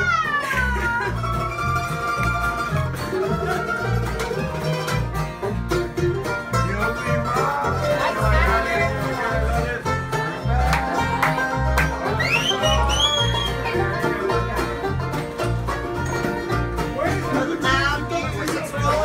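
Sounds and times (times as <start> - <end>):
bluegrass band playing: 0.0 - 19.0.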